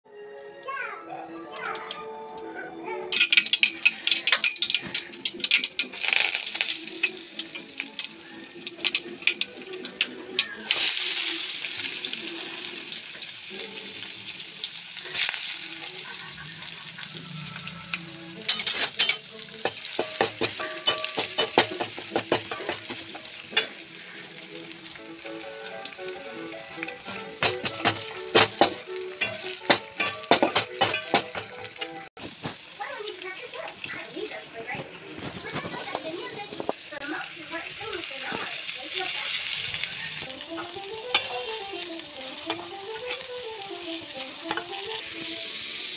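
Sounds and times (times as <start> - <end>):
oil sizzling in a pan: 0.1 - 45.9
spoon scraping a pan: 16.6 - 24.3, 27.0 - 32.1, 39.8 - 45.0.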